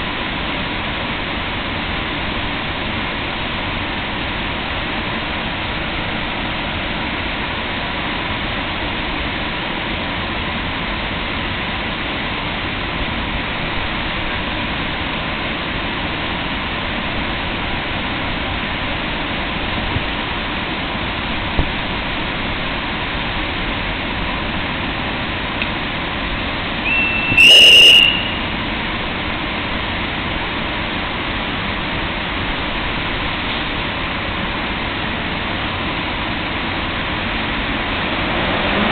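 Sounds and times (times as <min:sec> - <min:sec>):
electric locomotive rushing noise: 0:00.0 - 0:38.9
short shrill whistle: 0:26.8 - 0:28.5.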